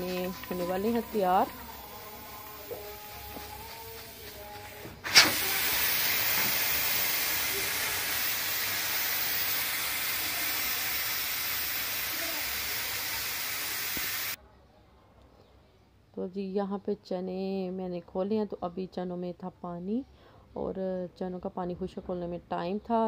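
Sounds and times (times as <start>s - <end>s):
pressure cooker steam hissing: 0.0s - 14.4s.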